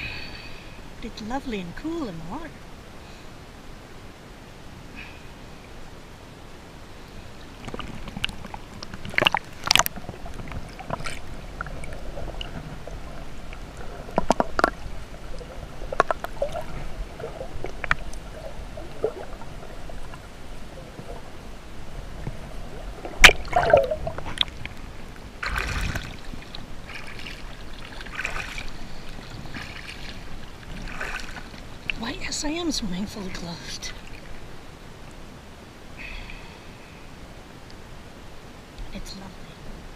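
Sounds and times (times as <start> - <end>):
water splashing and sloshing: 1.0 - 36.4
underwater gurgling: 7.3 - 34.7
sharp splashes: 22.9 - 24.8, 25.4 - 34.4.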